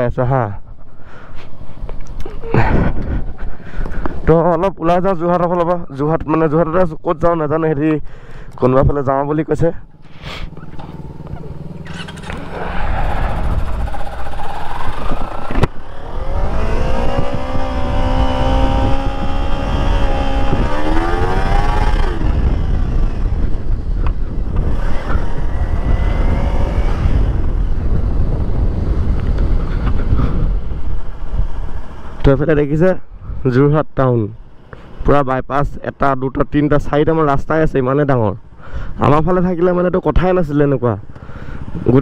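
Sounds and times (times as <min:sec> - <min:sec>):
motorcycle engine pulling away: 0:09.8 - 0:32.2.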